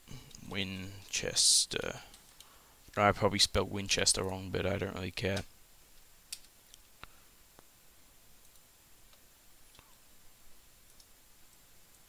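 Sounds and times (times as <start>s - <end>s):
computer mouse clicks: 8.4s - 9.9s.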